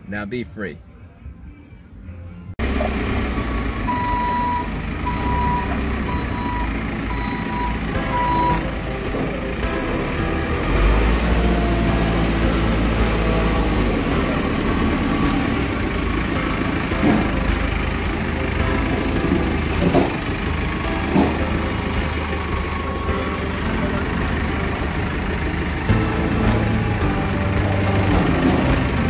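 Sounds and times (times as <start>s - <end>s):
diesel engine running: 2.6s - 29.0s
reversing alarm beeping: 2.7s - 25.4s.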